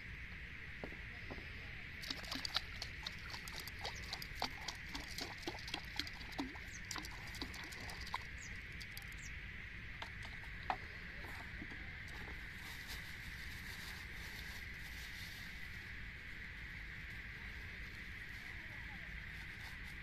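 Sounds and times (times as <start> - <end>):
steady high hum: 0.0 - 20.0
fish splashing in water: 2.0 - 9.3.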